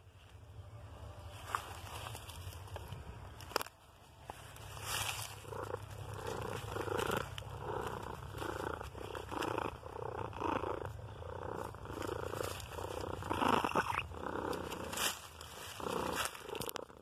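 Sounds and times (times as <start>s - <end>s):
fur rustling against phone: 1.3s - 10.7s, 14.2s - 16.7s
cat purring: 4.7s - 17.0s.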